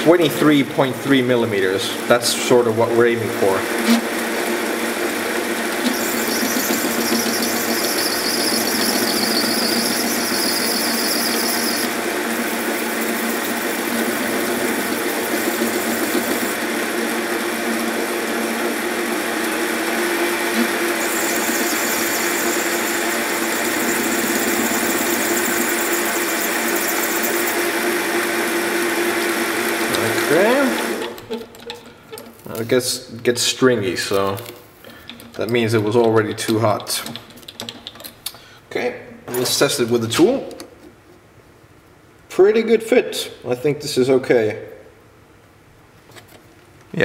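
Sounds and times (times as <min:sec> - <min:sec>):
lathe cutting plastic: 0:03.3 - 0:31.6
high-pitched whine: 0:05.8 - 0:16.6, 0:20.4 - 0:27.6.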